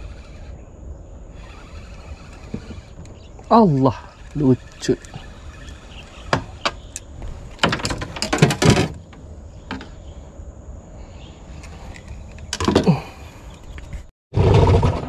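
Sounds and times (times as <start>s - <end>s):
faint steady high whine: 0.0s - 8.2s
clatter of clicks and knocks: 7.6s - 9.1s.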